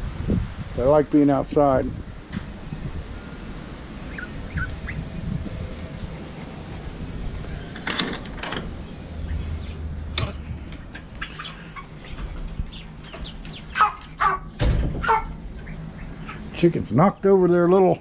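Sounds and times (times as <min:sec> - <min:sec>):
young chickens clucking: 0:04.0 - 0:07.8, 0:08.7 - 0:18.0.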